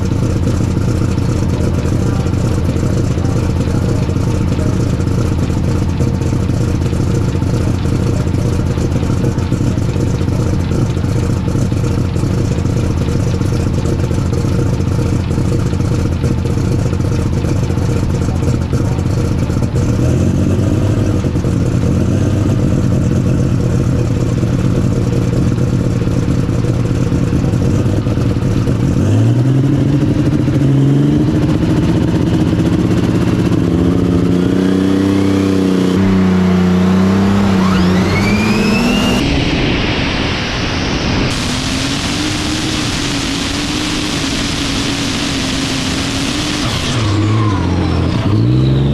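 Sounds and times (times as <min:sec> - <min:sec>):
tractor engine idling and revving: 0:00.0 - 0:48.9
high whine: 0:20.8 - 0:48.9.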